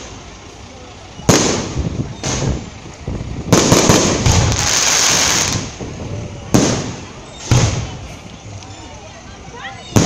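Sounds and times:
fireworks crackling: 0.0 - 10.0
fireworks bangs: 1.2 - 2.8, 3.4 - 8.2.

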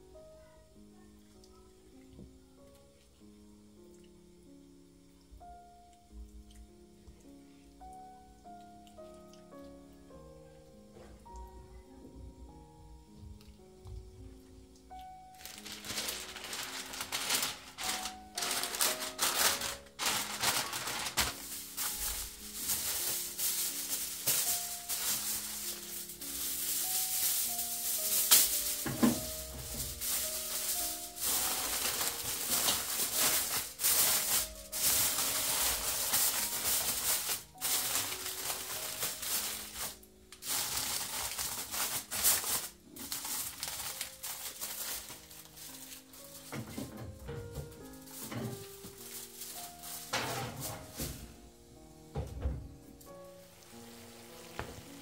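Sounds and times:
quiet background music: 0.0 - 55.0
foil crinkling: 15.0 - 51.4, 53.4 - 55.0
baking paper rustling: 15.2 - 51.4, 53.3 - 55.0.

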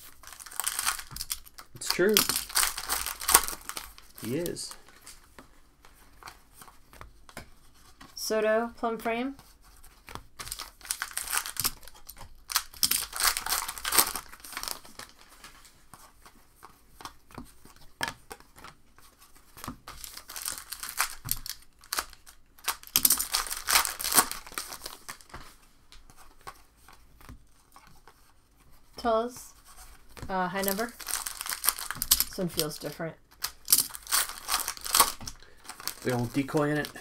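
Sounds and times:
foil wrappers torn and crinkled: 0.0 - 5.2, 10.4 - 15.3, 19.9 - 25.4, 30.5 - 37.0
cards clicking and rustling: 0.0 - 8.2, 9.7 - 28.8, 29.5 - 37.0.

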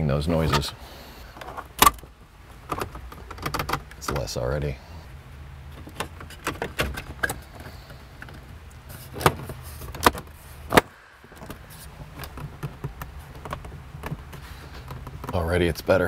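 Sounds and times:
steady low hum: 0.0 - 16.0
plastic dashboard trim clicking: 2.7 - 4.3, 9.1 - 15.4.

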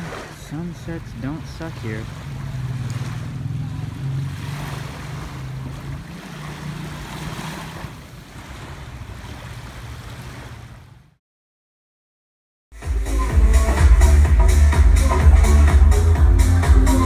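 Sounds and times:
sea waves washing on shore: 0.0 - 11.2.

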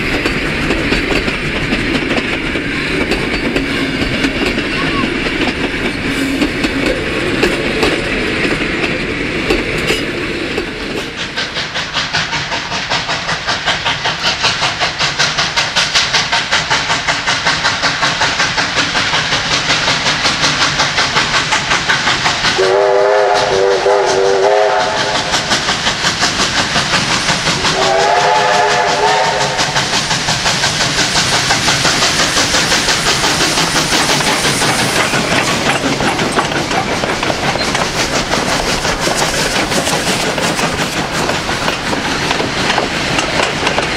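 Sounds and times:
carriage wheels clattering on rails: 0.0 - 22.6, 29.5 - 43.9
steam locomotive exhaust beats: 0.0 - 43.9
steam whistle: 22.6 - 25.4, 27.7 - 29.8.

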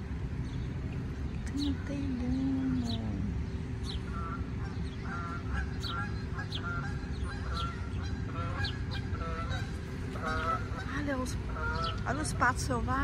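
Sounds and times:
geese honking: 3.9 - 13.0.

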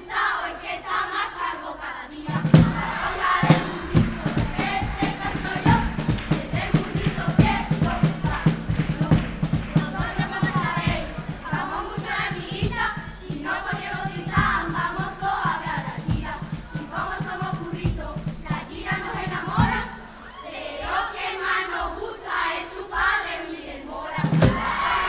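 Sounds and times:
children's chorus singing: 0.0 - 25.0
steady beat: 2.4 - 19.8.

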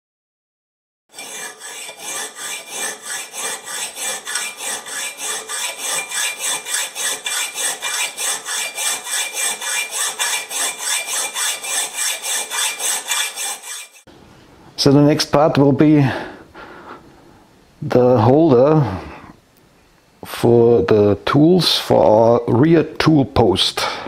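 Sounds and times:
hand tool rasping strokes: 1.1 - 14.1.

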